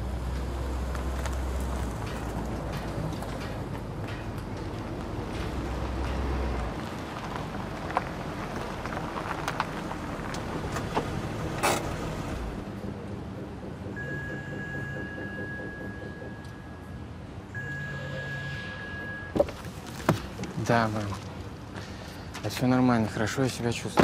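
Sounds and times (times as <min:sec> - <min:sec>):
steady high tone: 0:13.3 - 0:19.4.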